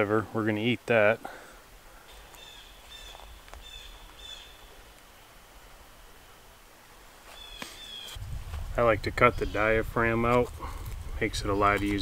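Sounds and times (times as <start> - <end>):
songbird chirping faintly: 0.0 - 8.2.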